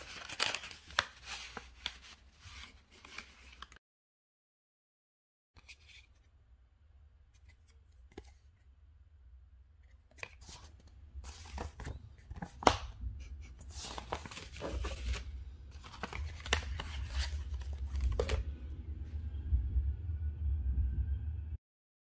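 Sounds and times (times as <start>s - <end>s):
paper rustling and crinkling: 0.0s - 3.8s, 10.1s - 18.5s
low handling rumble: 17.6s - 21.6s.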